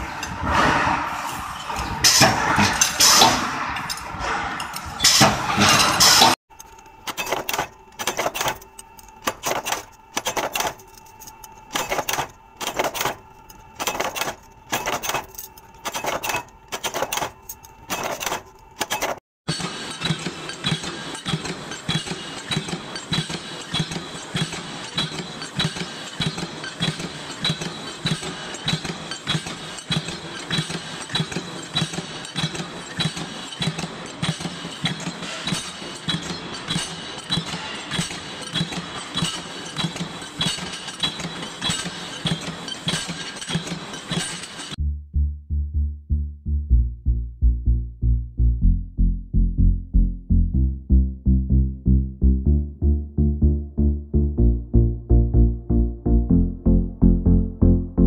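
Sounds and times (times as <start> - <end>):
power press stamping steel plates: 0.0 - 44.8
press humming and clacking: 0.0 - 44.8
ram machine clattering: 11.7 - 44.8.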